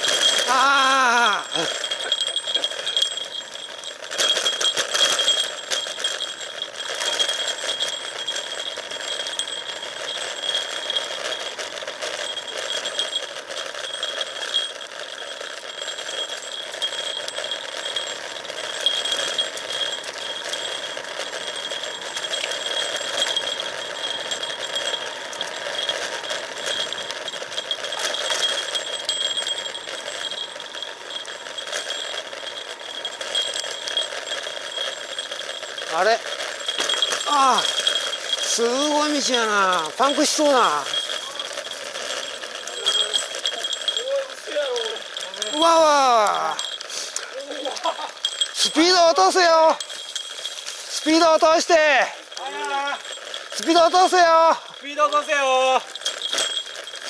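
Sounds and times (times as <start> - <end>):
bike rattling and ticking: 0.0 - 57.0
steady high-pitched ring: 0.0 - 57.0.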